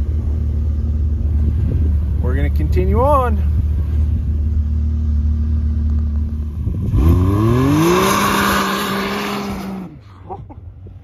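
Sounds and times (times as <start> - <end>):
engine revving: 3.5 - 10.0.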